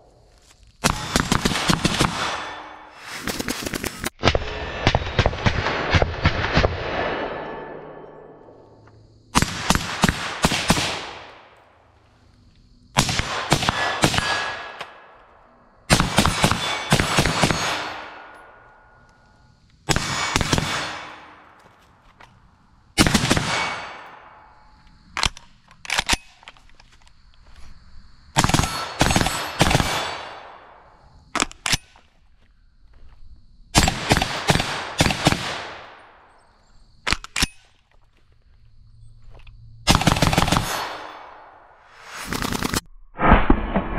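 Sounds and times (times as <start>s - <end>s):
gunshot echo: 4.2s - 8.5s, 43.2s - 43.9s.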